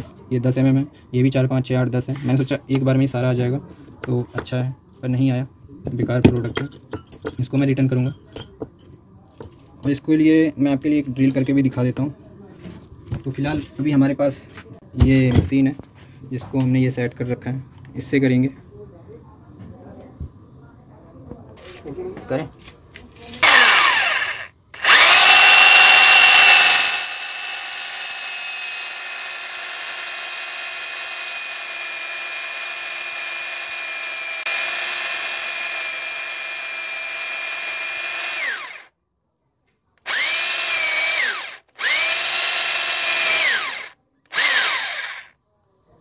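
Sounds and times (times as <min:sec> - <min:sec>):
electric drill boring into wood: 0:23.4 - 0:38.9, 0:40.0 - 0:45.3.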